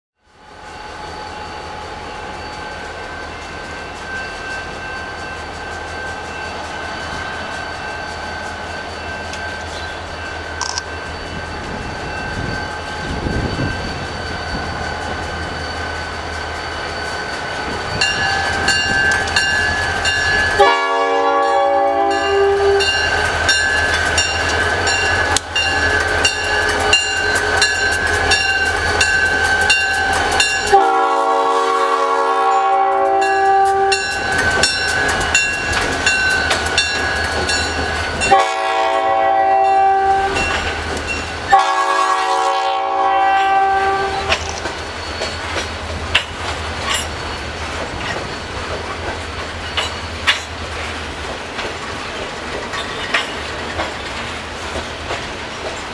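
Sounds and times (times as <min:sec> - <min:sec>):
diesel locomotive running: 0:00.2 - 0:55.9
multi-tone train air horn: 0:20.6 - 0:23.0, 0:30.6 - 0:34.1, 0:38.3 - 0:40.4, 0:41.5 - 0:44.4
wheels clicking over rail joints: 0:32.8 - 0:38.4, 0:44.2 - 0:55.9.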